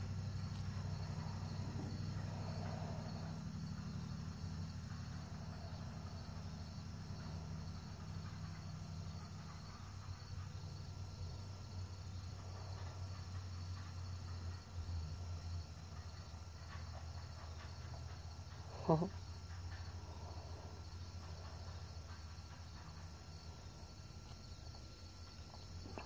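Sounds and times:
crickets chirring: 0.0 - 26.0
low steady hum: 0.0 - 26.0.

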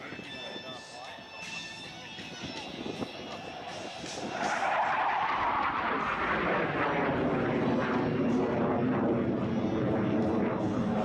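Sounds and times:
jet passing overhead: 2.5 - 11.0.

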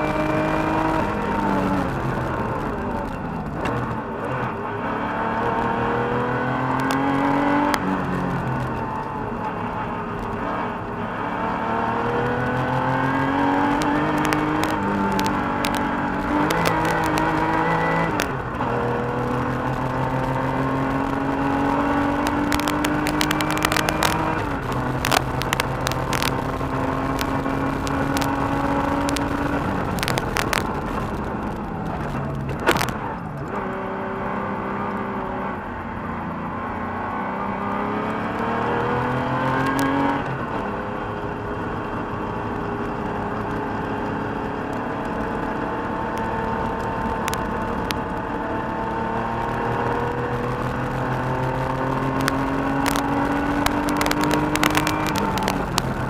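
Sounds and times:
car engine revving: 0.0 - 56.0
sharp clicks: 13.6 - 18.4, 21.6 - 33.6, 46.2 - 48.2, 50.6 - 56.0.

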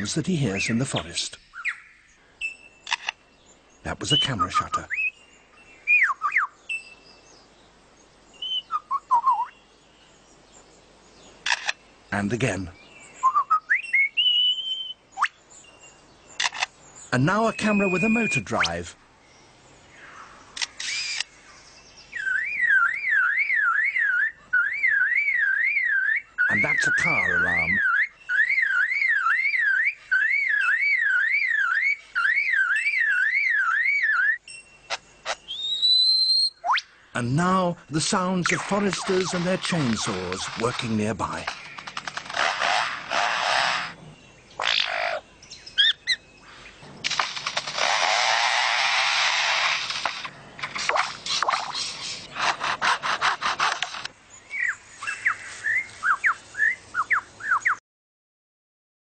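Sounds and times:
sharp click: 2.8 - 3.2, 16.4 - 16.7
bird whistling sweeping notes: 5.8 - 7.0, 8.4 - 9.6, 13.2 - 15.4, 22.1 - 41.1
lyrebird mimicking car alarm: 16.4 - 18.8, 22.2 - 44.0
bird mimicking chainsaw: 20.6 - 21.3, 38.0 - 44.0, 47.1 - 54.1.

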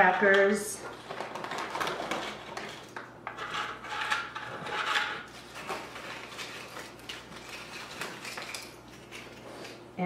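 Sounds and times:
foil package rustling: 0.9 - 3.1, 5.2 - 9.6.

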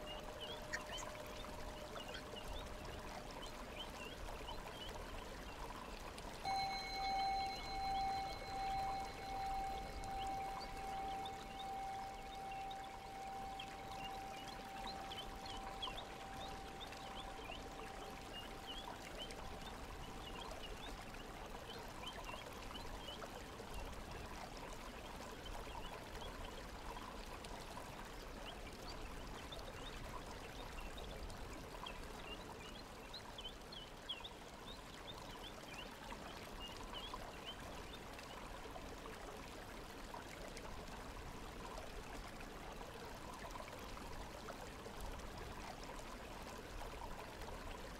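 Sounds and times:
running water rushing: 0.0 - 27.8
steady tone: 6.5 - 20.4.

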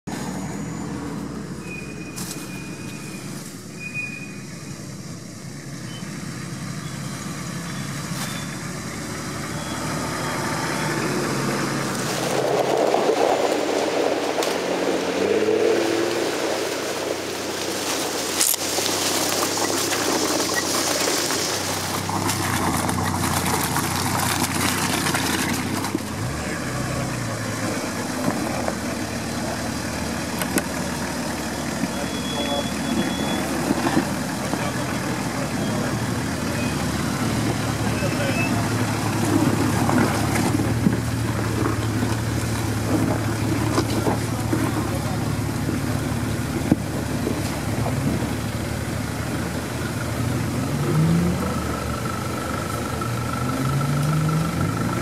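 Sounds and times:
off-road vehicle engine running: 0.0 - 55.0.

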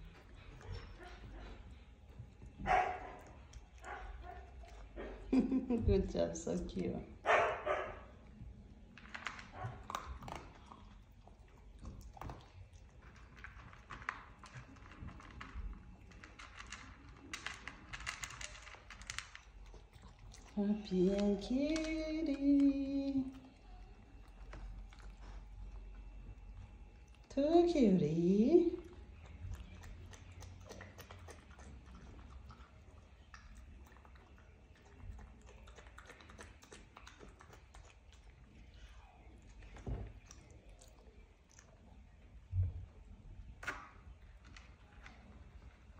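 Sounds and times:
small pets clicking and rustling: 8.9 - 27.8, 28.5 - 45.9.

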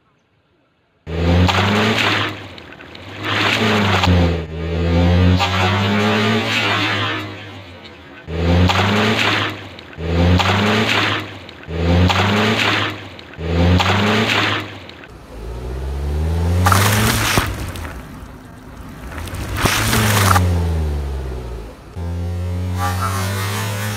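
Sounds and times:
car engine: 1.1 - 23.9
tyres rolling on wet road: 1.1 - 23.9
water balloons bursting: 1.3 - 4.4, 8.5 - 22.0.

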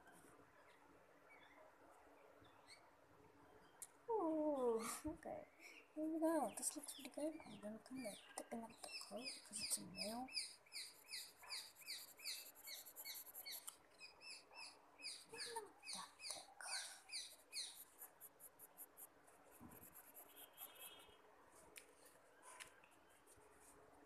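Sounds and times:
pencil scratching on paper: 10.8 - 13.8, 17.1 - 21.2.

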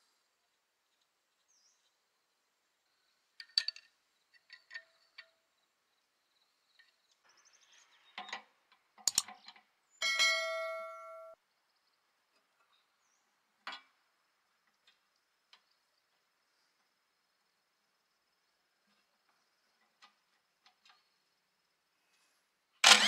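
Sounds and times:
bird chirping: 4.2 - 8.5
metal engine parts clinking: 9.1 - 9.3
loud ringing metal clang: 10.0 - 11.4.

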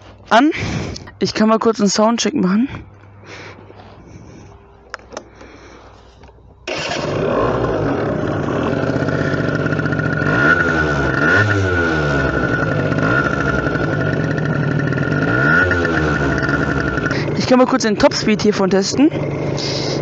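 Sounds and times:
quad engine revving: 6.7 - 20.0.

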